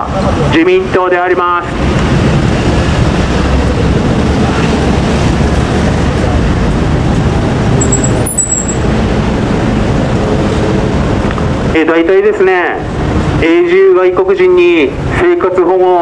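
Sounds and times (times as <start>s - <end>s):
street traffic rumble: 0.0s - 16.0s
short high squeal: 7.8s - 8.8s.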